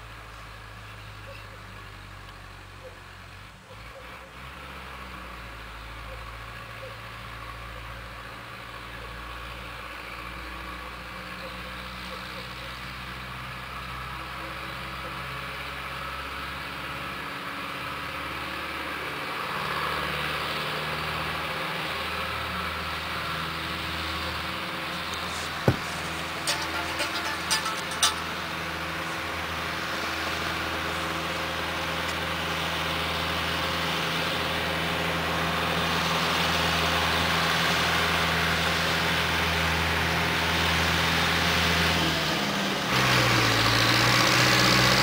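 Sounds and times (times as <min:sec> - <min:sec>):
tractor diesel engine laboring: 0:00.0 - 0:45.0
sharp knock: 0:25.6 - 0:28.2.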